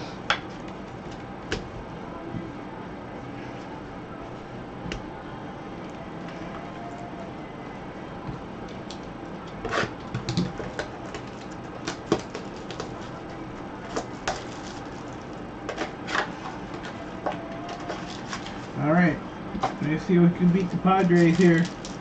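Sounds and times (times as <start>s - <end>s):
rustling of card and packaging: 9.9s - 18.8s, 19.7s - 22.0s.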